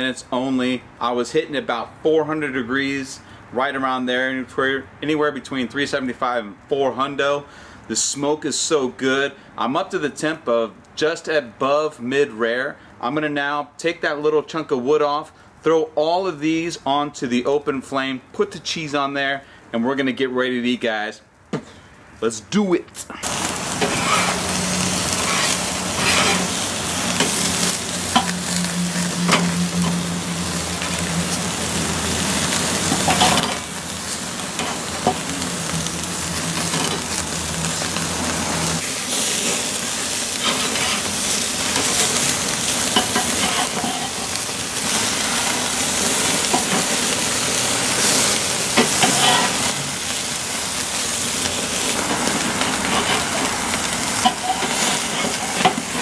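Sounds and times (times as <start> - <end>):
burgers sizzling on a grill: 0.6 - 15.3, 23.2 - 56.0
fat crackling on fire: 21.3 - 56.0.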